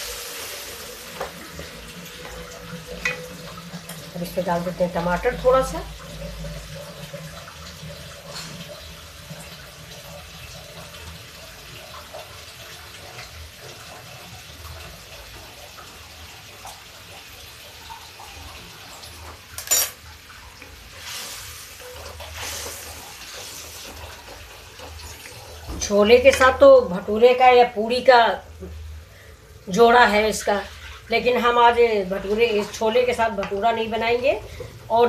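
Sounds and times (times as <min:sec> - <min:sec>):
sauce simmering and bubbling: 0:05.5 - 0:19.5, 0:20.1 - 0:26.9.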